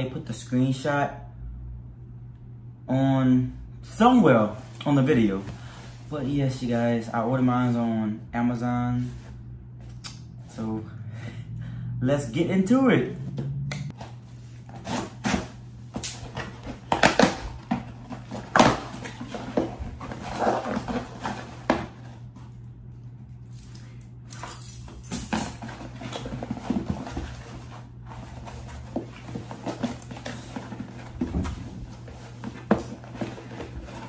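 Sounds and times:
steady low hum: 0.0 - 34.0
cardboard rustling and scraping: 14.0 - 22.6, 25.6 - 34.0.

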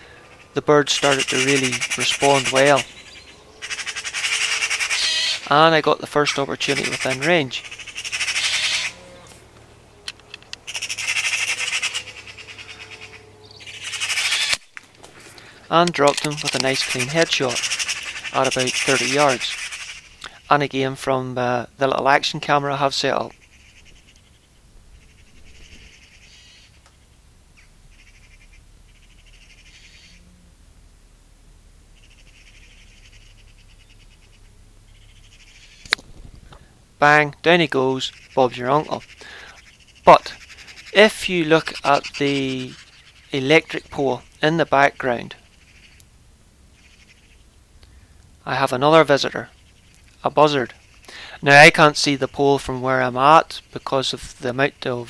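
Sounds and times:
magpies chattering: 0.0 - 30.3, 31.9 - 55.0.

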